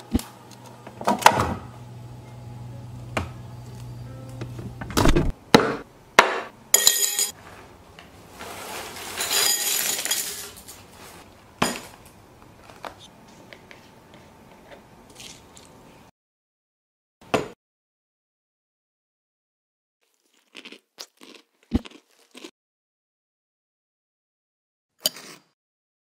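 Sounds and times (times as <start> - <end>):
ceramic bowl clinking: 6.8 - 7.4.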